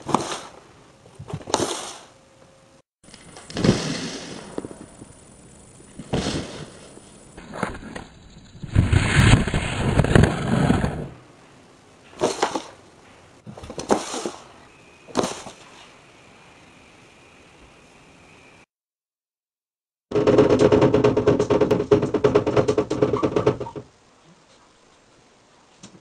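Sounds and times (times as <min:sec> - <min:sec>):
cardboard box scraping on floor: 0:08.7 - 0:11.1.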